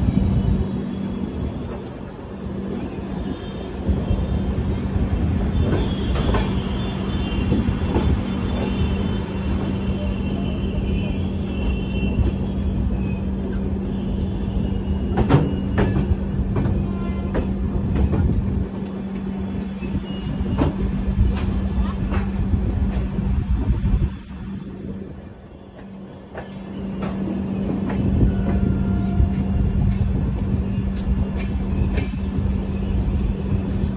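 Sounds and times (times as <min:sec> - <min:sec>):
train wheels rumbling on track: 0:00.0 - 0:33.9
high wheel squeal: 0:09.9 - 0:16.0.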